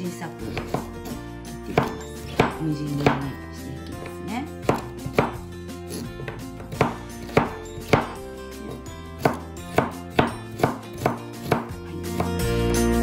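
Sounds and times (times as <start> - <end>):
knife chopping on cutting board: 0.0 - 12.7
quiet background music: 0.0 - 13.0.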